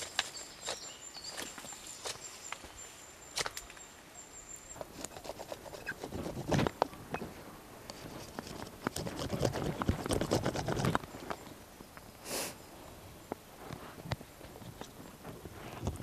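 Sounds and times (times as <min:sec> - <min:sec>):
knife scraping wooden stick: 0:04.9 - 0:06.7.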